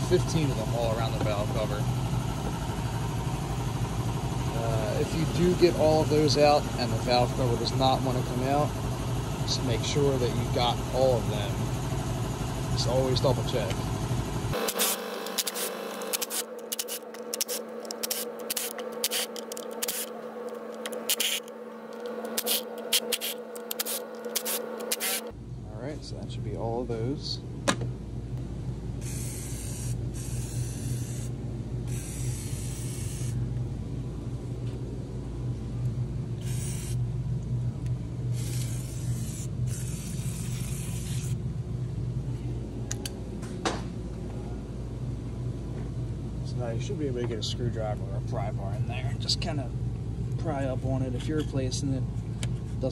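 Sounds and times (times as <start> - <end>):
steady low hum: 0.0 - 52.9
power tool motor whine: 14.5 - 25.3, 29.0 - 31.3, 31.9 - 33.4, 36.4 - 37.0, 38.3 - 41.4
aerosol can spraying: 14.6 - 20.1, 22.3 - 25.2, 29.0 - 31.3, 31.9 - 33.4, 36.4 - 37.0, 38.4 - 41.4.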